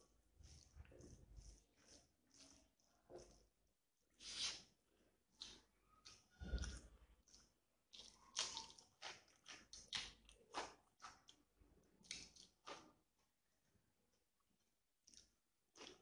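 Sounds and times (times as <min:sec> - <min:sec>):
wet chewing and lip-smacking: 0:05.4 - 0:12.9, 0:15.0 - 0:16.0.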